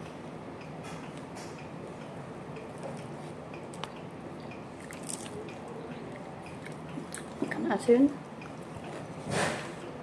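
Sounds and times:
wet squishing of rice: 4.7s - 9.2s
person chewing: 4.8s - 7.5s, 8.2s - 9.2s.

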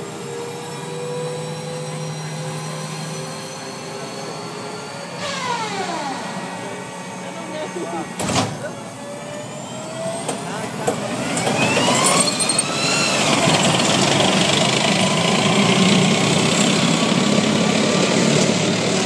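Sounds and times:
tank turbine engine whining: 0.0s - 19.0s.

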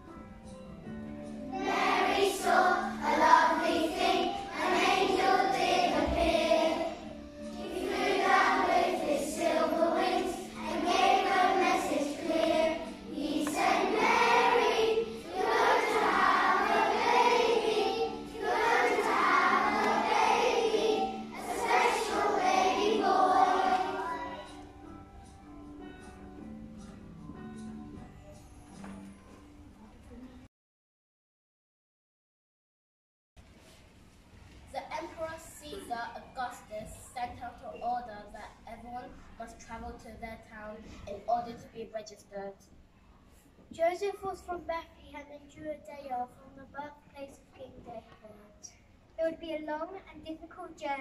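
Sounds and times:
children's choir singing: 1.4s - 24.9s.

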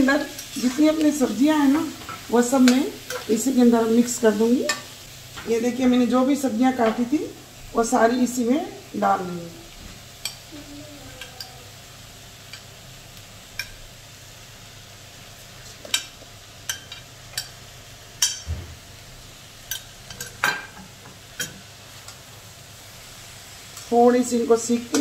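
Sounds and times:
faint sizzle: 0.0s - 25.0s
metal spatula scraping pan: 0.2s - 1.0s.

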